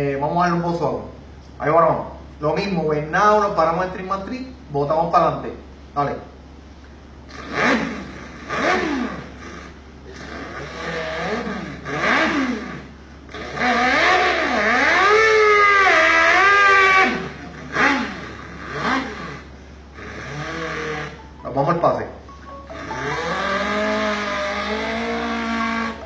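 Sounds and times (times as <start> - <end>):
man imitating an engine by mouth: 7.3 - 21.3, 22.8 - 26.0.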